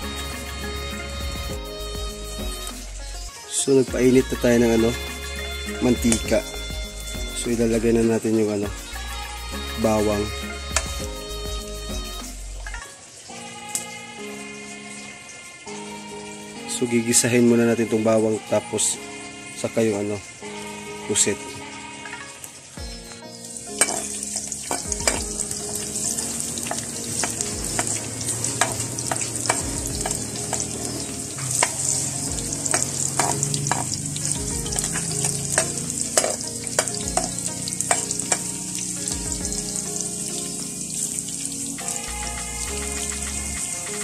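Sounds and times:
garlic sizzling in hot oil: 0:00.0 - 0:44.0
metal ladle scraping a wok: 0:23.8 - 0:38.9.

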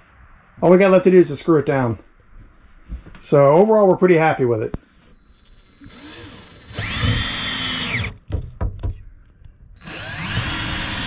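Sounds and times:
cordless drill driving a screw: 0:05.2 - 0:08.2, 0:09.8 - 0:11.0.

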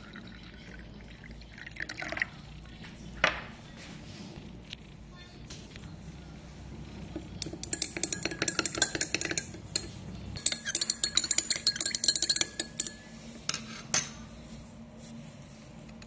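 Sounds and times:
glass rod clinking against beaker: 0:07.4 - 0:13.0.

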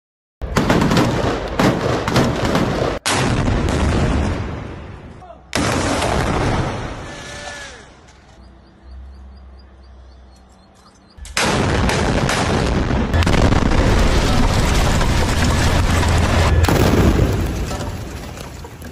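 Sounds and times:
tank gun blast: 0:00.4 - 0:07.2, 0:11.3 - 0:18.2
low rumble: 0:11.2 - 0:18.4
gunfire: 0:11.3 - 0:17.6.

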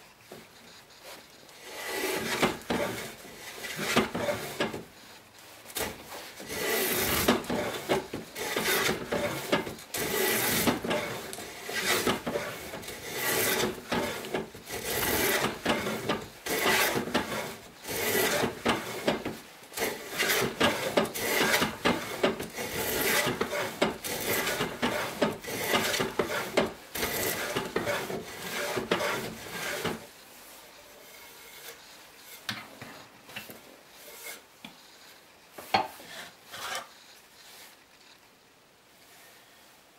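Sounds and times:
hand plane shaving wood: 0:01.0 - 0:04.9, 0:05.7 - 0:32.5, 0:36.0 - 0:36.9.

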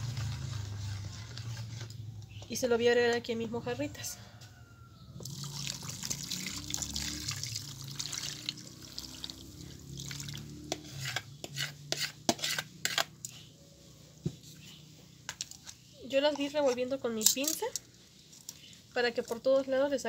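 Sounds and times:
liquid pouring into bowl: 0:05.2 - 0:10.6.

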